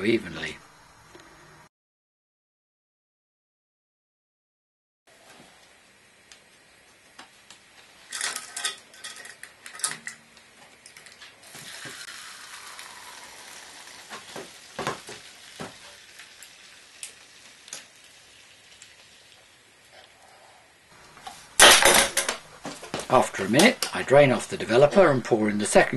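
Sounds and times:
liquid sloshing hiss: 11.4s - 20.7s.

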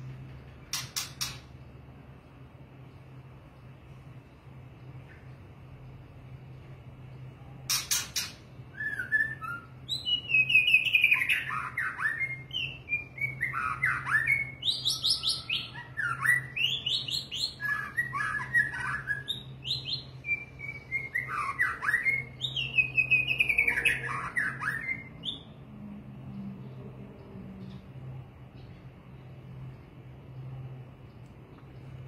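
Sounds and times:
low steady hum: 0.0s - 32.0s
bird whistling song: 0.7s - 1.5s, 7.7s - 25.6s
sharp click: 0.7s - 1.6s.

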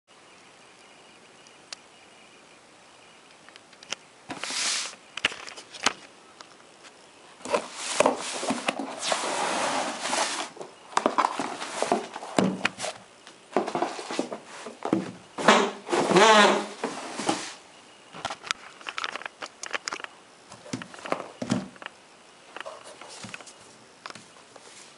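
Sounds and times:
cardboard rustling and scraping: 7.4s - 17.6s, 22.6s - 23.8s.

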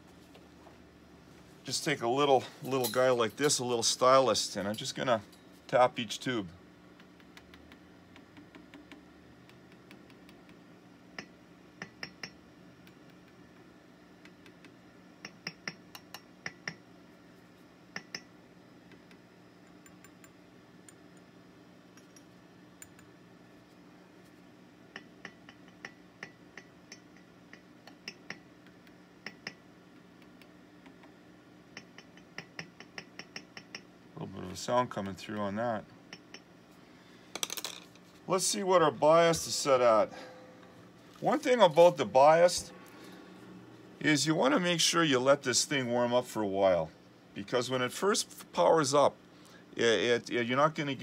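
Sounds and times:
faint amplifier hum: 0.0s - 51.0s
stylus tapping glass tubes: 7.0s - 13.4s, 14.2s - 16.8s, 17.9s - 18.3s, 24.9s - 33.9s.

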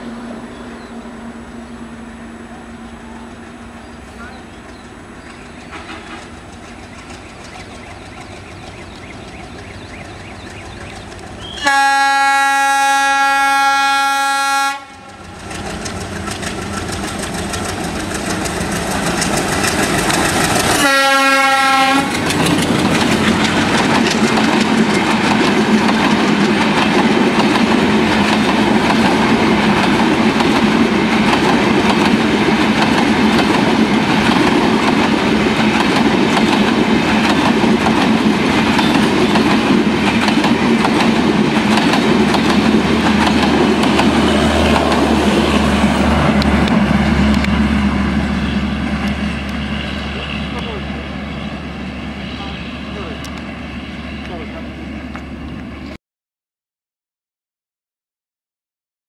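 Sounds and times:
diesel locomotive engine humming: 0.0s - 56.0s
train wheels clickety-clack: 4.2s - 11.9s, 14.7s - 50.8s
train horn blast: 11.4s - 15.2s, 20.7s - 22.4s.

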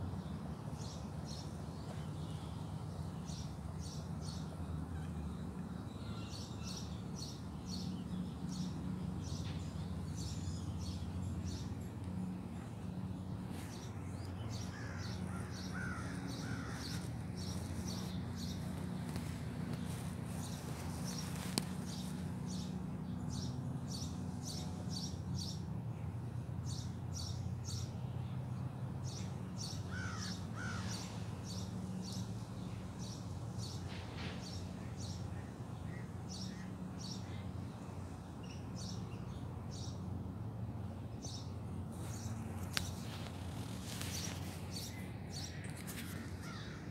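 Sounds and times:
steady low hum: 0.0s - 46.9s
birds chirping: 0.1s - 28.4s, 29.0s - 46.9s.

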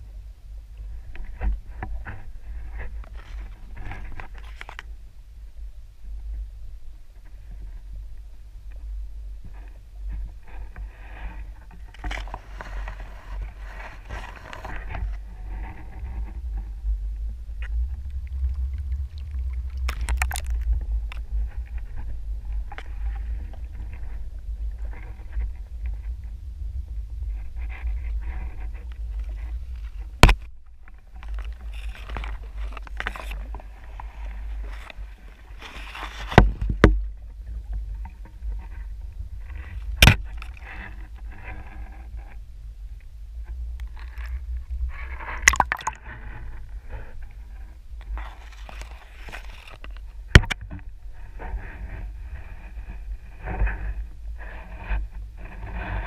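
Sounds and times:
underwater rumble of moving water: 0.0s - 56.0s
sharp underwater knocks: 40.0s - 40.5s, 45.4s - 46.1s, 50.3s - 50.8s.

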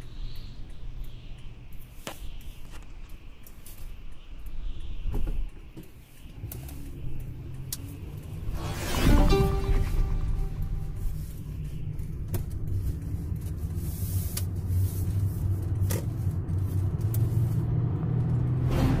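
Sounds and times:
car driving interior rumble: 6.4s - 19.0s.

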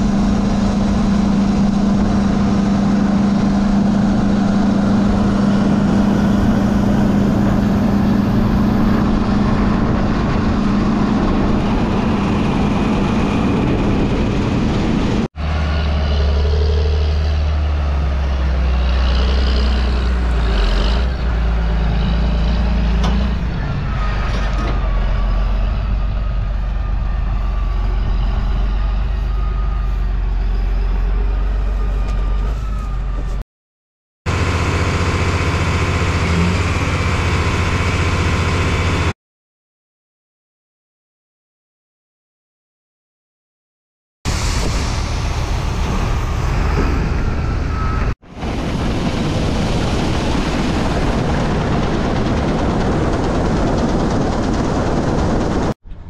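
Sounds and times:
deep engine rumble: 0.0s - 33.4s, 44.3s - 56.0s
loud machine hum: 0.0s - 33.4s, 34.3s - 39.2s, 44.3s - 56.0s.

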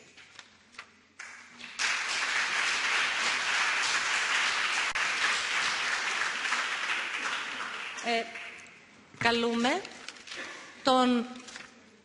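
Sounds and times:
audience applauding: 1.2s - 8.7s.

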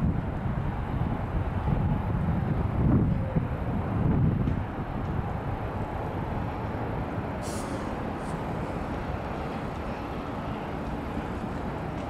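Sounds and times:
low city rumble: 0.0s - 12.0s
brief hisses: 7.4s - 8.4s.

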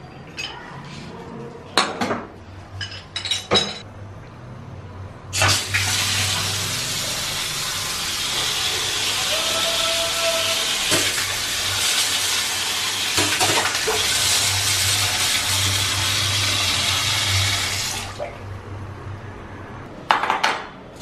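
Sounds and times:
water gushing from tap: 5.4s - 18.2s.

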